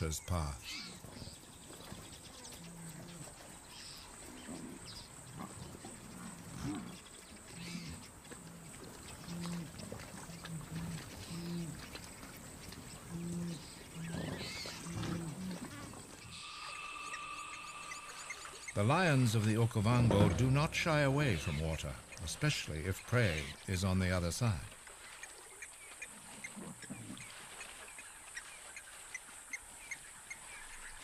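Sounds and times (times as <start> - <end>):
splashing through shallow water: 0.7 - 31.0
buffalo grunting: 7.6 - 11.9, 13.0 - 21.6.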